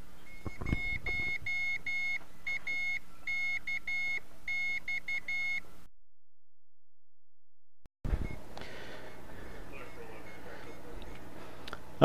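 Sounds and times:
morse code tone: 0:00.3 - 0:05.6, 0:08.1 - 0:11.2
microphone set down thump: 0:00.4 - 0:01.4.

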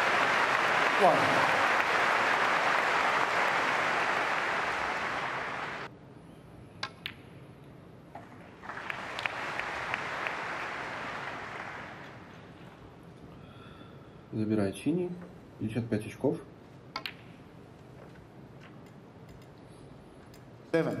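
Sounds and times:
crowd applauding: 0:00.0 - 0:05.9, 0:08.2 - 0:12.3
snooker balls clicking: 0:06.8 - 0:07.4, 0:16.9 - 0:19.7.

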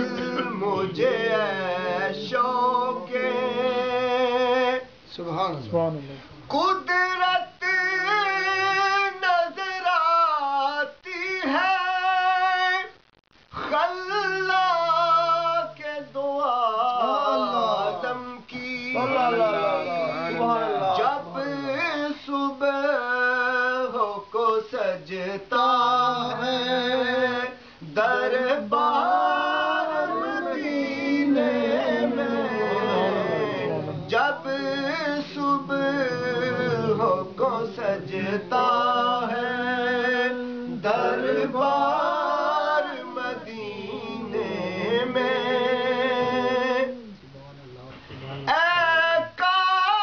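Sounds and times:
man singing unaccompanied: 0:00.0 - 0:05.2, 0:06.5 - 0:47.3, 0:48.2 - 0:50.0.

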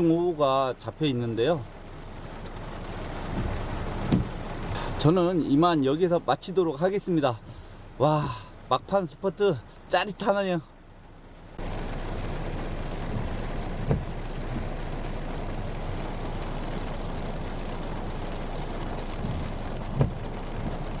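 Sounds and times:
heavy rain on car: 0:00.0 - 0:21.0
low thump: 0:03.3 - 0:04.4, 0:13.1 - 0:14.7, 0:19.2 - 0:20.2.

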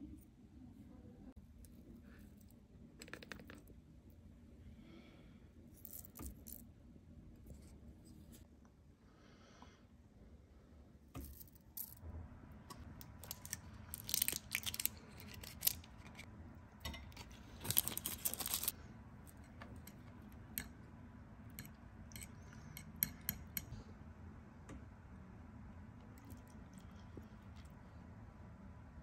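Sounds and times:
spoons clinking on a glass bowl: 0:21.5 - 0:23.7.

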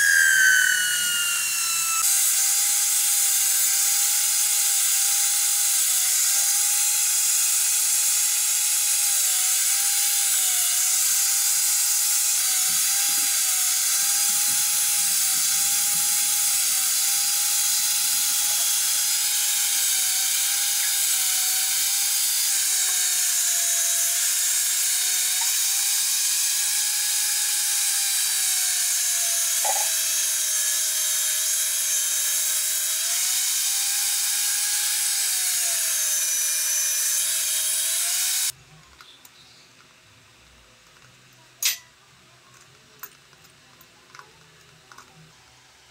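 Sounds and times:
angle grinder cutting wood: 0:00.0 - 0:38.6.

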